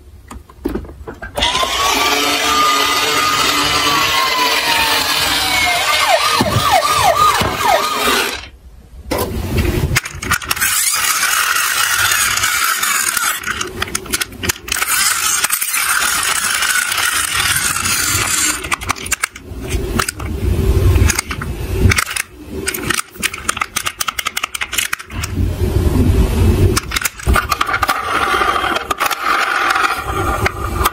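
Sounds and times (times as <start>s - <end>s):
plastic toy cars clattering: 9.2s - 25.4s, 26.7s - 30.9s.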